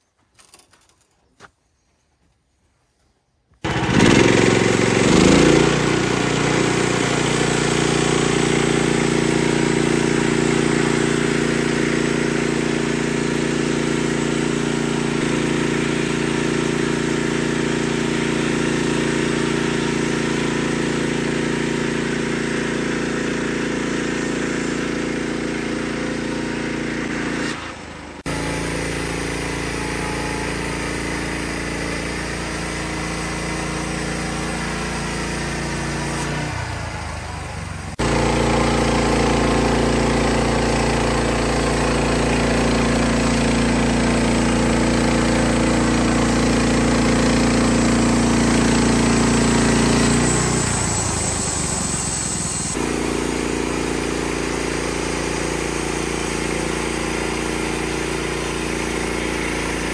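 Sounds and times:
band blade sawing wood: 3.6 - 20.8, 38.0 - 59.9
bandsaw mill engine running: 3.6 - 59.9.

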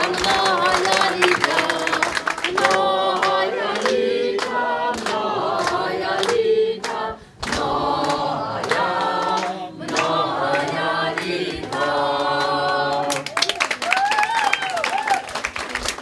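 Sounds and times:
crowd singing in chorus: 0.0 - 13.4.

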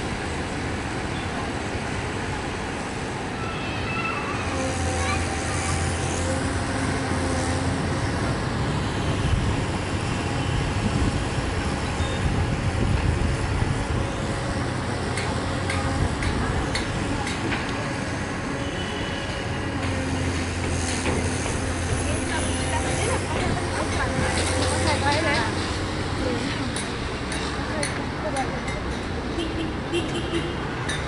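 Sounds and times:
excavator diesel engine running: 4.5 - 29.4.

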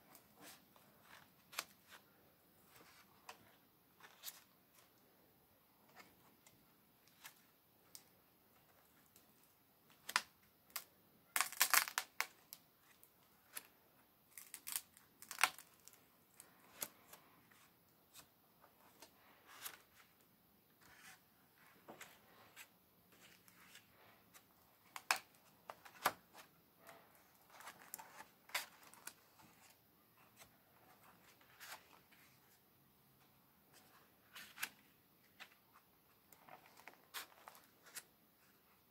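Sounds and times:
pages being turned: 35.4 - 38.1.

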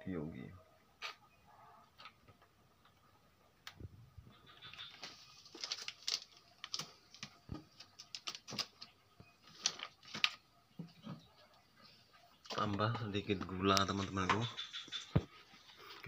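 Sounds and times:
rustling: 4.3 - 10.4.

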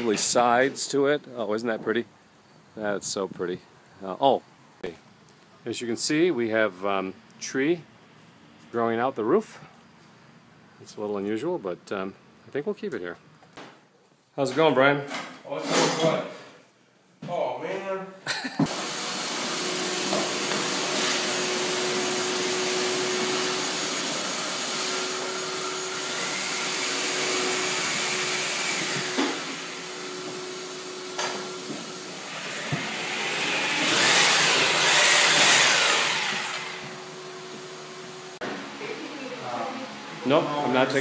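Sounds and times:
vacuum cleaner running: 18.7 - 41.0
harsh loud noise: 32.3 - 37.0.

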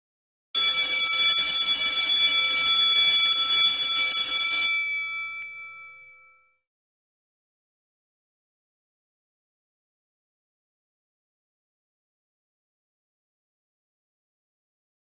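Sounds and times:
electric bell ringing: 0.6 - 6.6.

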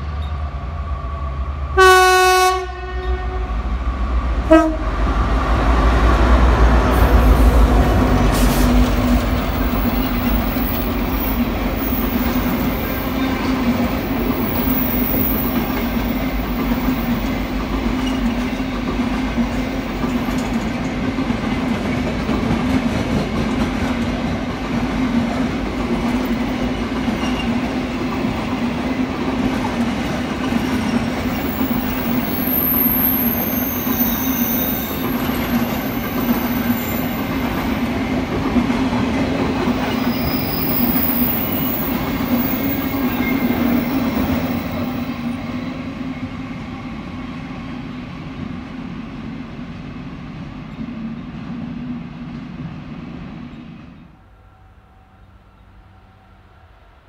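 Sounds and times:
freight train rumbling past: 0.0 - 57.0
wheel squeals: 31.3 - 37.3.

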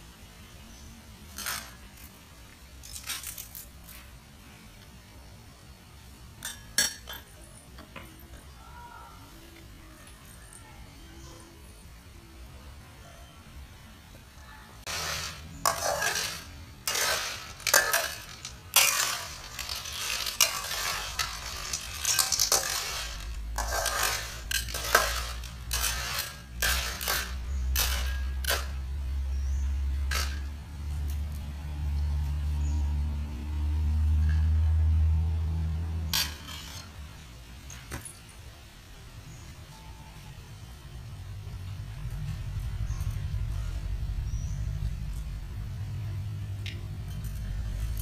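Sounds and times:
hard objects clattering in a pot: 14.8 - 31.0
low steady rumble: 40.4 - 48.0.

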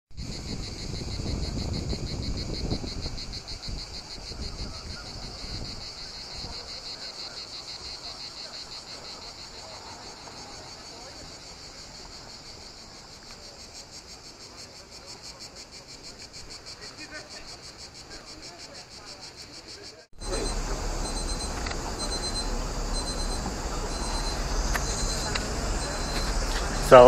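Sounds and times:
wind buffeting microphone: 0.2 - 7.0
cicadas chorus: 0.2 - 27.0.

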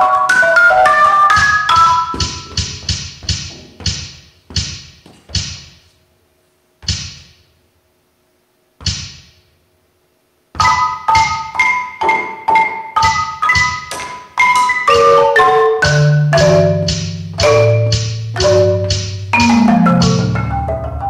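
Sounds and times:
marimba notes: 0.0 - 3.0, 10.6 - 21.0
dry mallet strikes: 1.3 - 5.8.

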